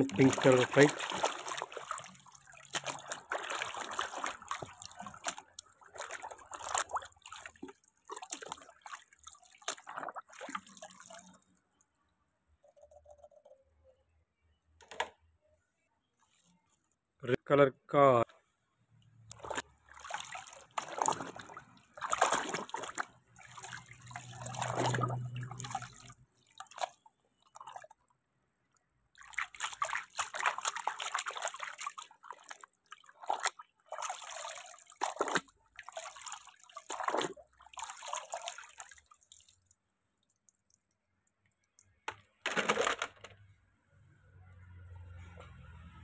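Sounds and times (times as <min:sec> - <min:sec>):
water splashing in a tub: 0:00.0 - 0:11.7, 0:19.3 - 0:28.2, 0:29.1 - 0:43.0.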